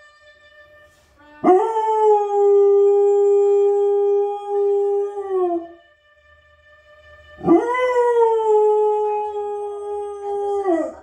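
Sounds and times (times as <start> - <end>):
trumpet fanfare on television: 0.0 - 8.6
dog howling: 7.4 - 11.0.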